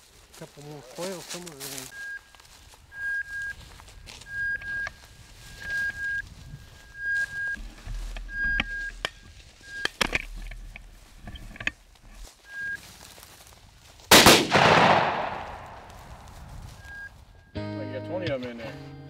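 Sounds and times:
footsteps through dry grass: 0:00.0 - 0:17.5
short high beeps: 0:01.9 - 0:03.6, 0:04.2 - 0:07.6, 0:08.3 - 0:09.0, 0:16.8 - 0:17.6
shotgun shot echoing: 0:14.1 - 0:16.2.

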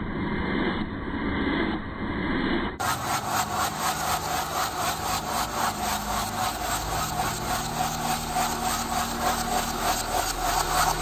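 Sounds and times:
ceiling fan motor hum: 0:02.8 - 0:11.0
fan scraping rub: 0:02.8 - 0:11.0.

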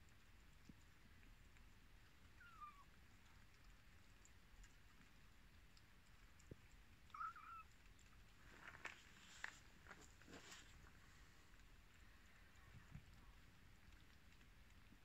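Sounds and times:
kitten mewing: 0:07.1 - 0:07.7.

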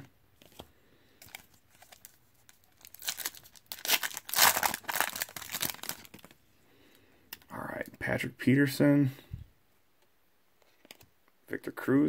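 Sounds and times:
foil wrapper tearing and crinkling: 0:01.2 - 0:06.3.

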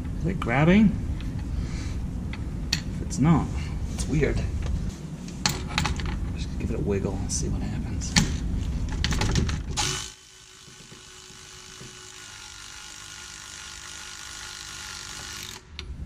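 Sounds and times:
cordless ratchet running: 0:09.8 - 0:15.7.

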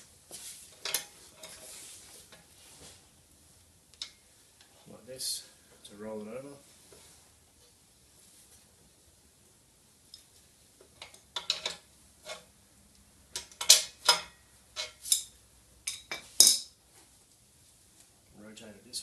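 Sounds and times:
metal clanks and clicks: 0:11.0 - 0:12.4, 0:13.3 - 0:15.3.

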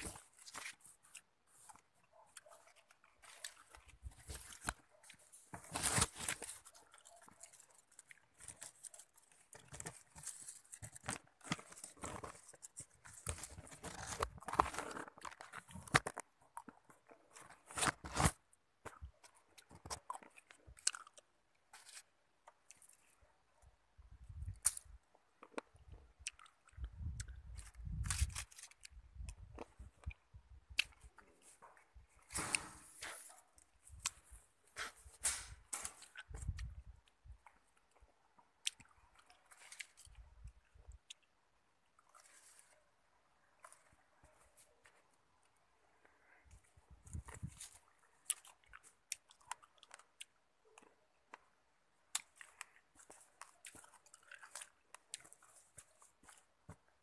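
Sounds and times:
person chewing grapes: 0:00.0 - 0:23.3, 0:24.4 - 0:35.0, 0:35.6 - 0:57.0.

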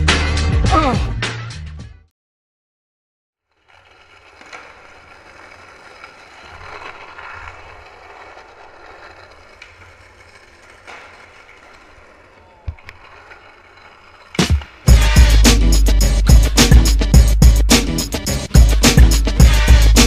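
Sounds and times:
skateboard wheels rolling on concrete: 0:03.4 - 0:20.0
skateboard clicks: 0:03.5 - 0:15.2.

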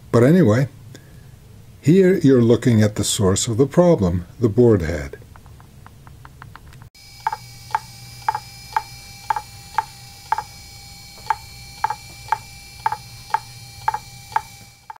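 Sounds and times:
hard drive whine: 0:07.0 - 0:15.0
hard drive head clicking: 0:07.2 - 0:10.6, 0:11.2 - 0:15.0.

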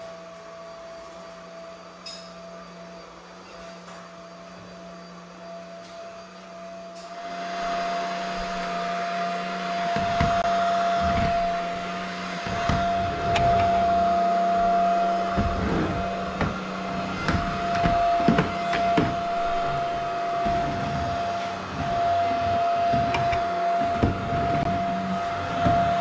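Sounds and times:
stick vacuum whining: 0:05.8 - 0:26.0.

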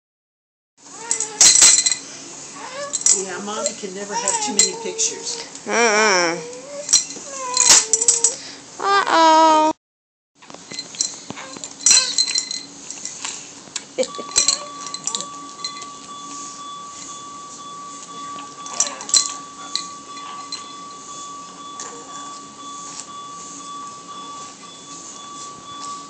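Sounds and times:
steady low hum: 0:10.7 - 0:26.0
steady high tone: 0:14.0 - 0:26.0.

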